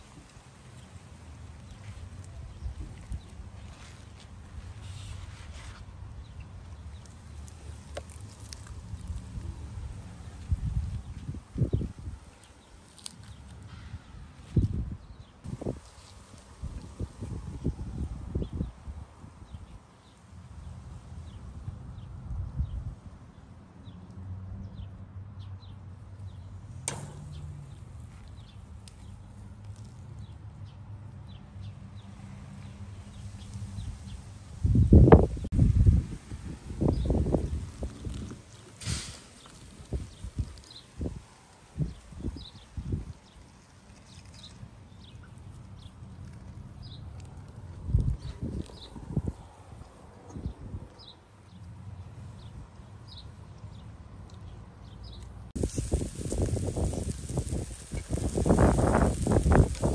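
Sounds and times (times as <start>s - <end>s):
sharp click: 26.8s - 27.4s
small birds chirping: 27.2s - 34.2s, 39.4s - 41.1s, 41.8s - 47.3s, 47.9s - 59.9s.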